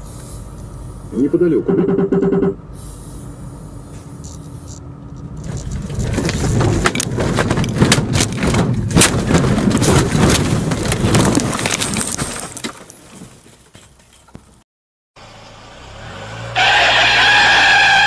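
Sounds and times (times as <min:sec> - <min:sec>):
vehicle cab running noise: 0:00.1 - 0:12.9
branches crashing against vehicle: 0:05.4 - 0:14.6.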